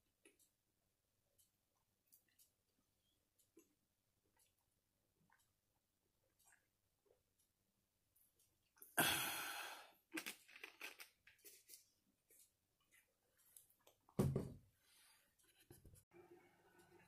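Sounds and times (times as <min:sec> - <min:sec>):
person gasping after drinking: 0:09.0 - 0:10.0
snack crunching and chewing: 0:10.1 - 0:13.0.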